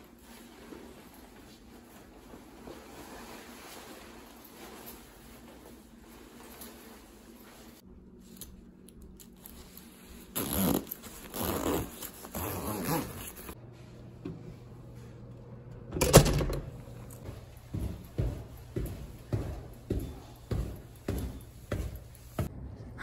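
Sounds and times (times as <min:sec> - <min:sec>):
fabric rustling: 0:00.0 - 0:08.4, 0:09.4 - 0:13.6
zipper being pulled up: 0:10.3 - 0:13.6
door latch clack: 0:16.0 - 0:16.7.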